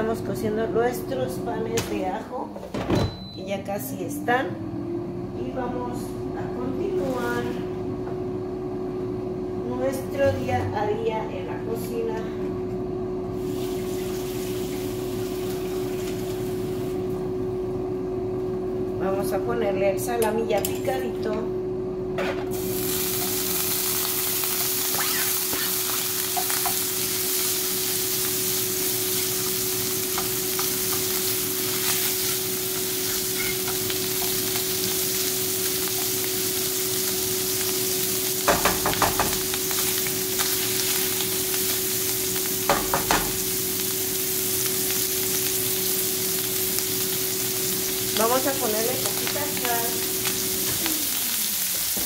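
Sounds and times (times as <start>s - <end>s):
meat sizzling in a frying pan: 13.4s - 17.0s, 22.5s - 52.0s.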